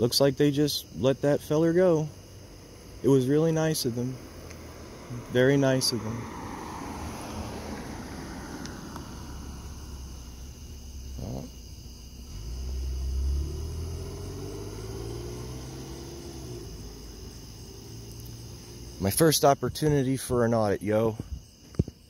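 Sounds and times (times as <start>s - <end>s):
crickets trilling: 0.0s - 22.0s
car engine pulling away: 4.1s - 19.3s.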